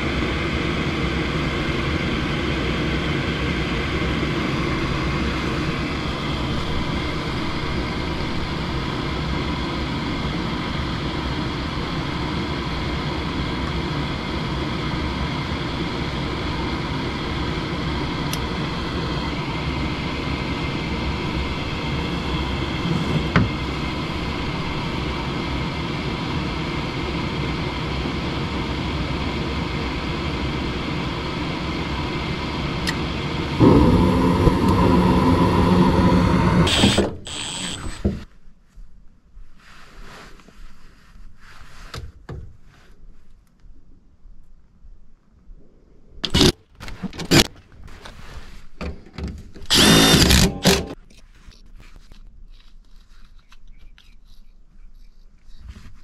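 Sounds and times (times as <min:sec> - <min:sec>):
furnace motor running: 0:00.0 - 0:38.2, 0:46.2 - 0:47.5, 0:49.6 - 0:51.0.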